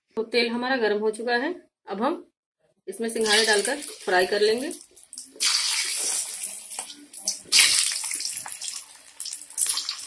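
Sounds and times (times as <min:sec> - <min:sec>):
oil sizzling and crackling: 0:03.2 - 0:10.0.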